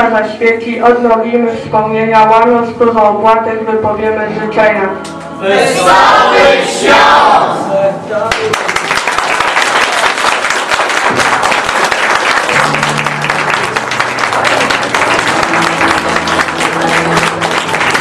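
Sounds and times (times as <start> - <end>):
audience applauding: 8.2 - 18.0
music with low sustained notes: 12.6 - 18.0.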